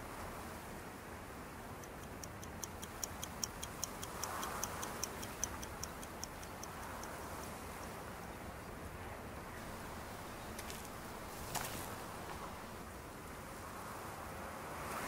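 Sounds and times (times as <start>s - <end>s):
faint steady hiss: 0.0s - 15.0s
watch ticking: 1.8s - 7.2s, 9.6s - 12.8s.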